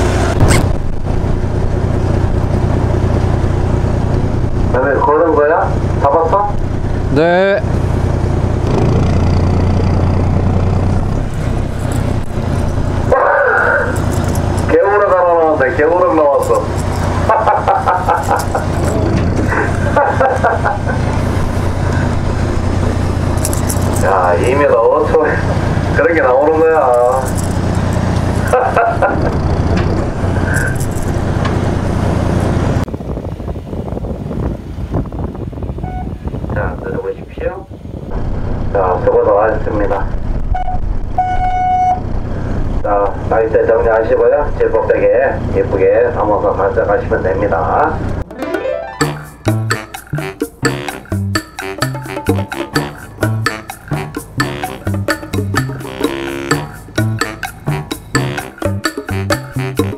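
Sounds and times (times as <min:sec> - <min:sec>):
boat engine idling: 0:00.0 - 0:32.8
wind: 0:00.0 - 0:48.9.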